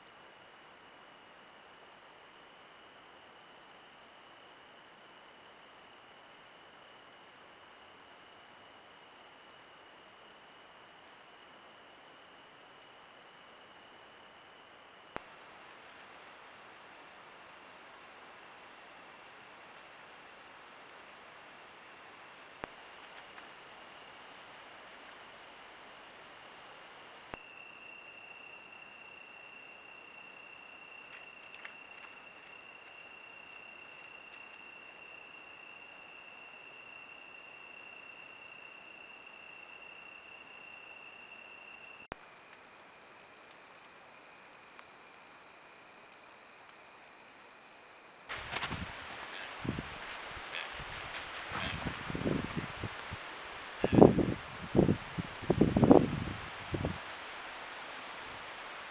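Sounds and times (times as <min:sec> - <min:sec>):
crickets and insects chirping: 0:00.0 - 0:58.9
microphone hiss: 0:48.3 - 0:58.9.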